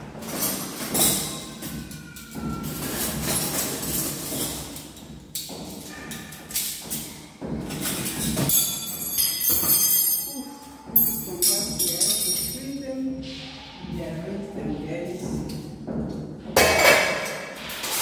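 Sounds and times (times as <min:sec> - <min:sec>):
metal cutlery clinking: 0:07.8 - 0:12.8.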